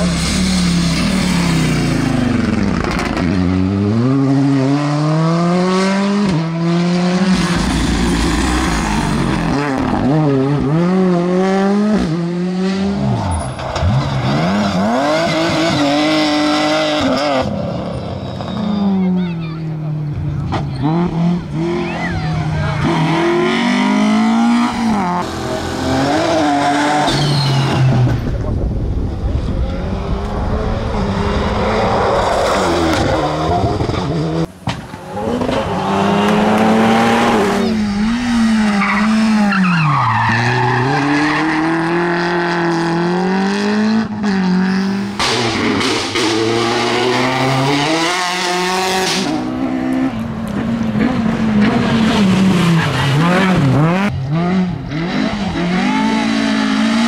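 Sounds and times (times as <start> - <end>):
rally car engines revving: 0.0 - 57.0
tyre squeal: 26.9 - 28.0.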